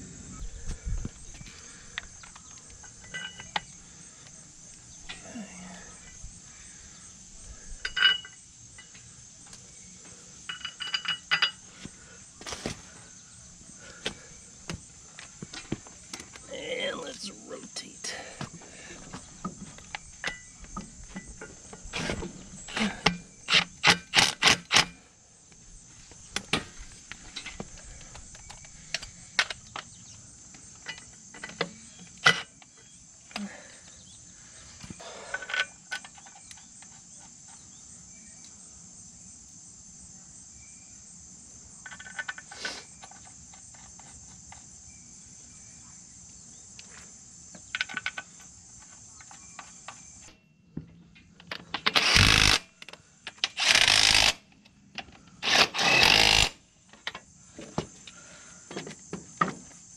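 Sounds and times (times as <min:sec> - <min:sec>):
high insect chirring: 0:00.0 - 0:50.6, 0:52.0 - 0:54.6, 0:55.4 - 0:59.9.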